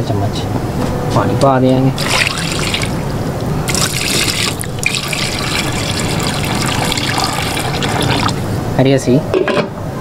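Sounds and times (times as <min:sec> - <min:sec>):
water pouring into metal pot: 0:02.0 - 0:08.4.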